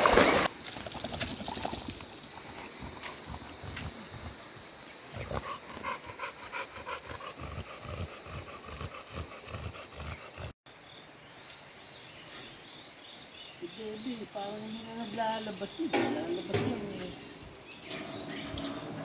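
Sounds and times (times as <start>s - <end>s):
dog panting: 5.1s - 10.6s.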